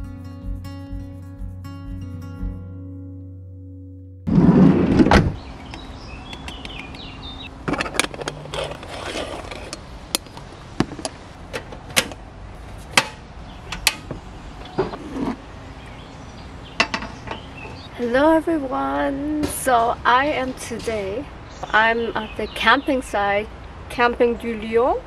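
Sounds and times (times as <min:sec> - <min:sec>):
van sliding door rumbling open: 0:04.3 - 0:06.2, 0:10.7 - 0:17.9
metal clicks and knocks: 0:07.6 - 0:08.9, 0:12.9 - 0:15.0, 0:16.8 - 0:17.8.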